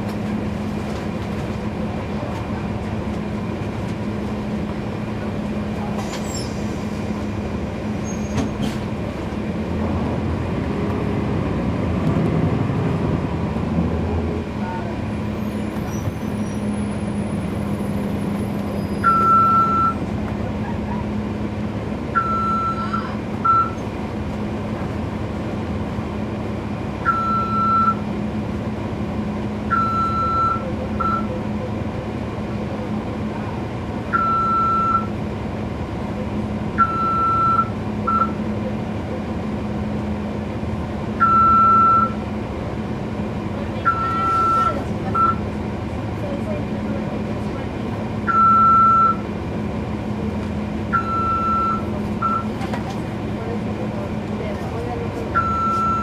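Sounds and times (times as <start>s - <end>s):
bus diesel engine running: 0.0s - 56.0s
short electronic beeps: 19.0s - 20.0s, 22.2s - 23.8s, 27.0s - 28.0s, 29.7s - 31.3s, 34.1s - 35.1s, 36.8s - 38.4s, 41.2s - 42.2s, 43.8s - 45.4s, 48.3s - 49.2s, 50.9s - 52.5s, 55.4s - 56.0s.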